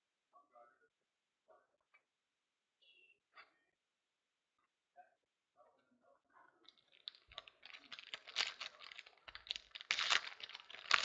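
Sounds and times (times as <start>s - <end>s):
trading cards rustling: 6.7s - 11.0s.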